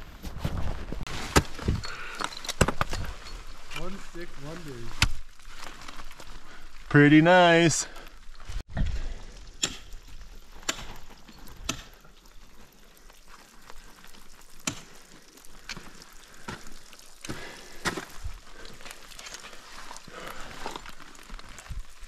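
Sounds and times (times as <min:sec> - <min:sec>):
ice axes striking ice: 0:01.1 - 0:04.0, 0:04.8 - 0:05.6, 0:09.4 - 0:12.2, 0:14.5 - 0:19.6.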